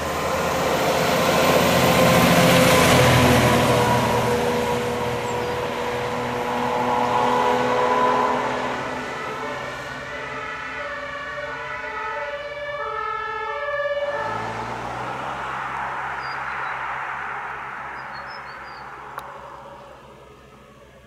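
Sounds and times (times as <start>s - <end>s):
truck engine and tyres driving away: 0.0s - 21.0s
two-tone siren: 2.1s - 17.4s.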